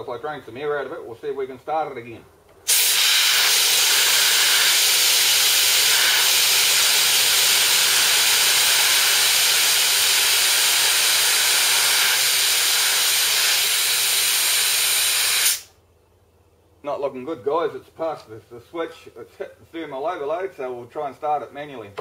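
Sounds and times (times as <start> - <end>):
compressed air hissing: 2.6 - 15.8.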